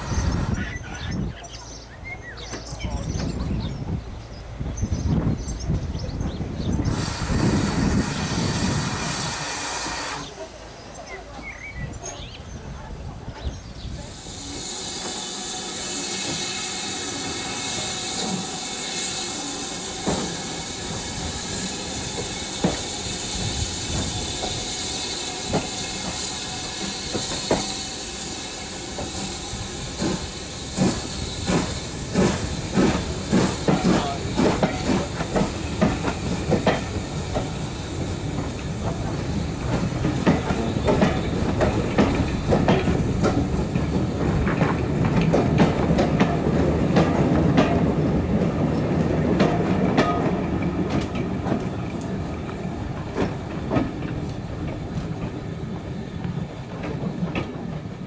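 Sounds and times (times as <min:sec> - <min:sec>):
steam hissing: 0:00.0 - 0:00.8, 0:06.6 - 0:10.8, 0:13.5 - 0:57.7
train wheels clicking over rail joints: 0:13.4 - 0:58.0.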